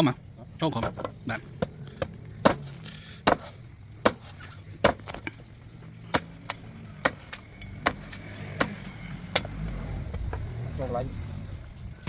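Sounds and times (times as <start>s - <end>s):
knife chopping coconut: 2.0s - 5.2s, 6.1s - 9.6s.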